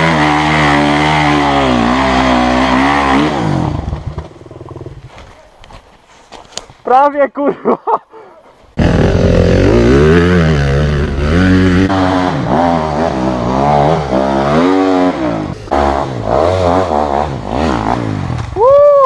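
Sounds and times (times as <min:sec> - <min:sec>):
dirt bike engine revving: 0:00.0 - 0:05.1, 0:08.8 - 0:18.6.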